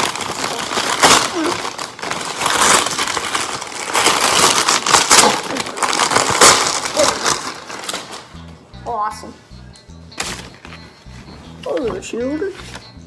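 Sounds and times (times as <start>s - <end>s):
paper crinkling and tearing: 0.0s - 8.3s.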